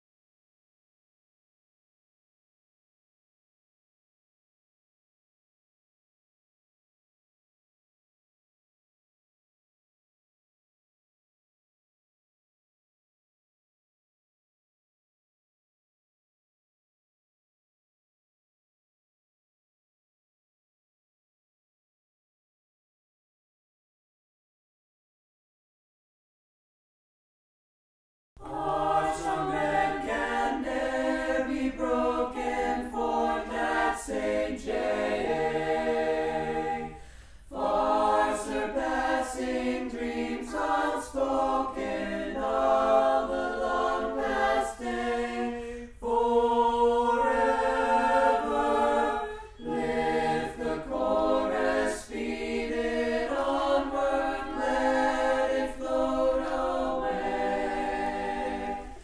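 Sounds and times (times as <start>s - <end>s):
choir singing unaccompanied: 28.4s - 59.0s.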